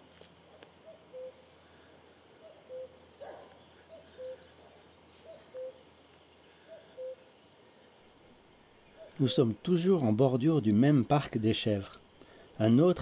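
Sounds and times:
bird rising chirp: 0.8 - 7.9.

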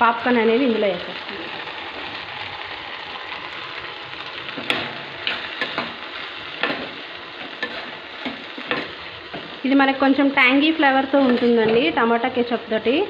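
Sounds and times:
butter sizzling in a pan: 0.0 - 13.0
spatula scraping and tapping pan: 4.5 - 9.6, 11.2 - 12.0.

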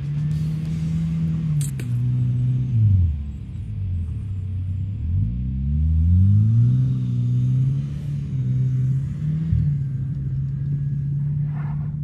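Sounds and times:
vehicle engine humming: 0.0 - 12.0.

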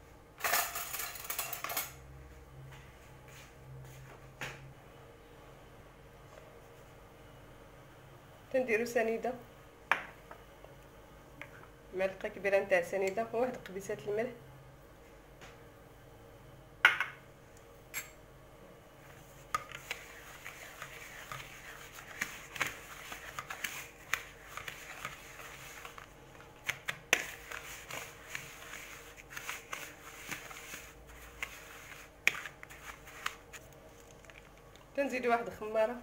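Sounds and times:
wire whisk stirring semolina: 19.0 - 34.7.

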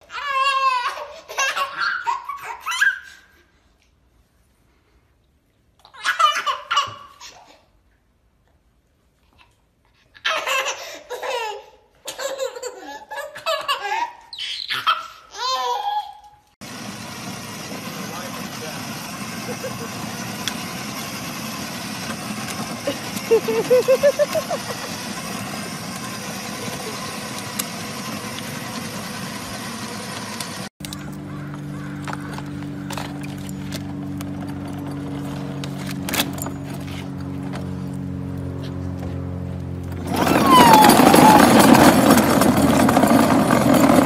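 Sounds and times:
toddler giggling and squealing: 0.0 - 3.5, 5.8 - 7.8, 9.4 - 16.4, 22.8 - 25.8, 40.1 - 41.9
toy car motors whirring: 16.6 - 31.3, 40.0 - 44.0
plastic wheels rolling on pavement: 16.6 - 44.0
low multi-tone hum: 16.7 - 40.2.

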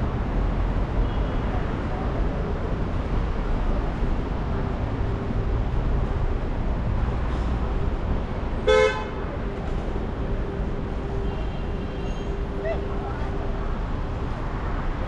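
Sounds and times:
city traffic rumble: 0.0 - 15.0
vehicle horn toot: 8.6 - 9.2.

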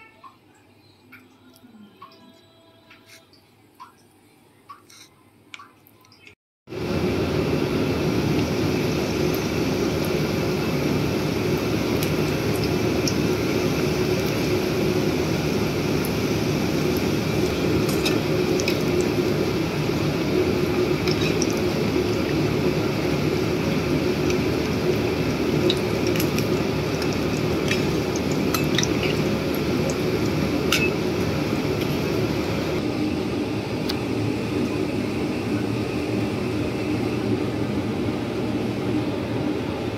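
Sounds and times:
faint steady hum: 0.0 - 39.9
food deep-frying in oil: 4.7 - 32.8
metal spoon clinking on pan: 30.7 - 31.0.

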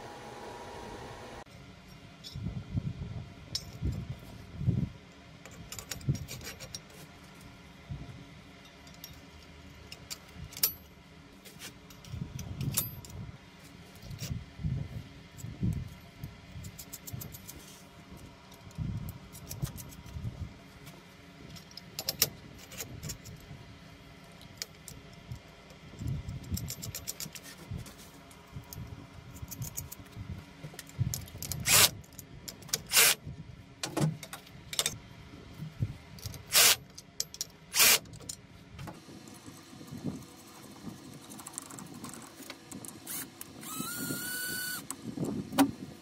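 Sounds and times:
steel parts clinking and rattling: 5.5 - 7.0, 8.6 - 10.9, 24.4 - 27.6.

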